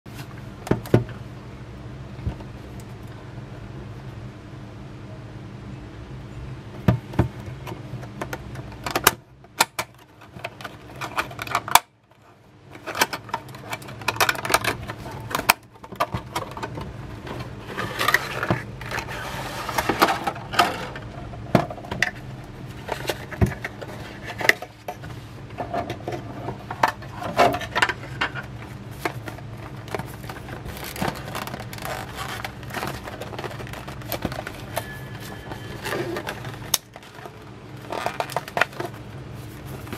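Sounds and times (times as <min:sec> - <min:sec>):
faint steady hum: 0:00.1 - 0:39.9
plastic packaging clicks and crinkling: 0:12.8 - 0:19.1, 0:26.7 - 0:39.9.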